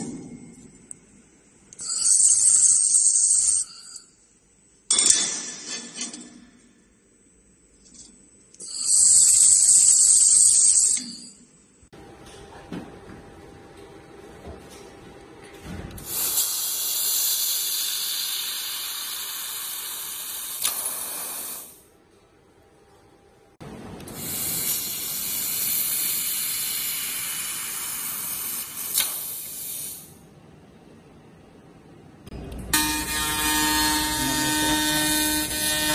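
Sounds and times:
laser cutter gas jet hissing: 16.0 - 21.8, 24.1 - 30.1.

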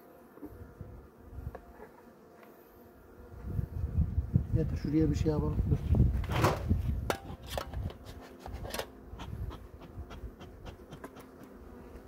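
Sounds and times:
faint hum of honeybees: 0.0 - 12.0.

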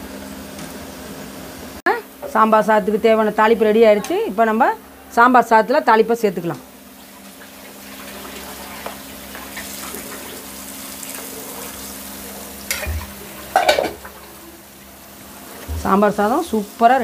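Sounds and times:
hot oil sizzling: 0.0 - 17.0
metal ladle and pan clinks: 12.7 - 14.0.

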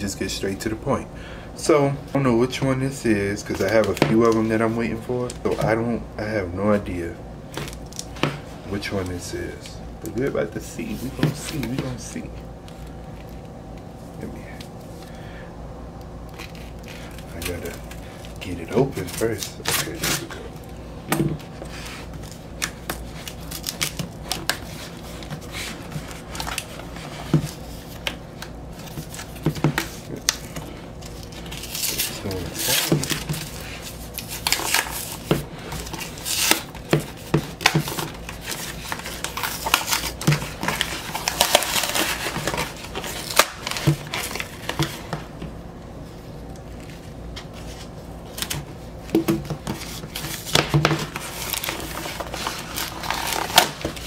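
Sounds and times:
packing tape scraping and tearing: 16.3 - 20.5, 21.4 - 45.2, 49.6 - 54.0.

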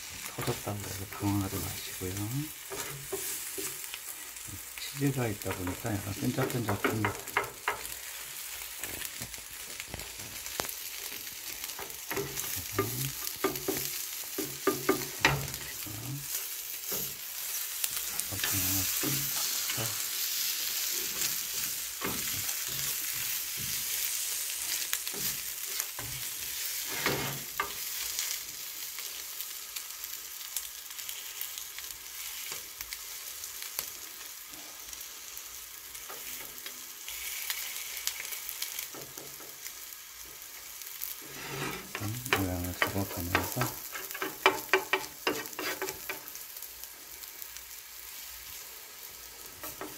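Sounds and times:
egg sizzling in oil: 0.0 - 49.9
spatula scraping and clicking on pan: 2.6 - 4.1, 5.5 - 9.3, 9.9 - 15.8, 16.4 - 28.4, 41.0 - 46.4, 49.6 - 49.9.

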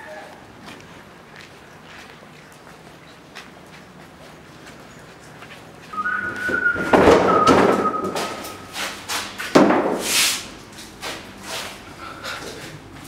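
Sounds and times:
steady high tone: 5.9 - 8.8.

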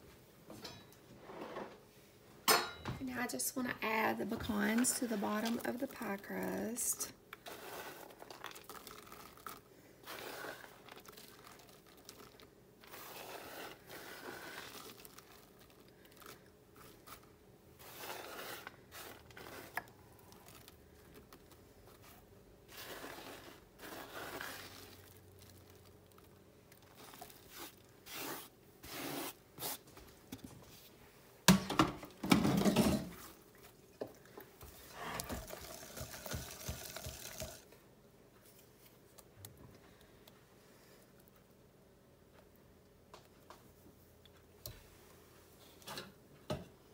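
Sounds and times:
pecans scraped and rustling: 3.2 - 29.8.

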